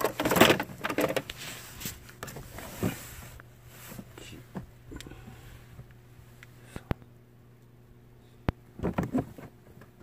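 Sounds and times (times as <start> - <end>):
rustling and scraping of plastic liner: 0.0 - 4.2, 8.8 - 9.8.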